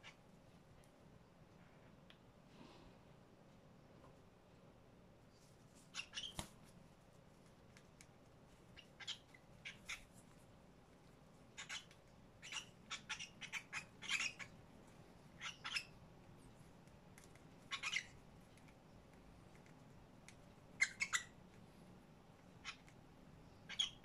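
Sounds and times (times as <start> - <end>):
cockatiel chirps and squawks: 5.9 - 6.5, 8.7 - 10.1, 11.5 - 14.6, 15.4 - 16.0, 17.7 - 18.2, 20.8 - 21.4, 22.5 - 23.0, 23.6 - 24.0.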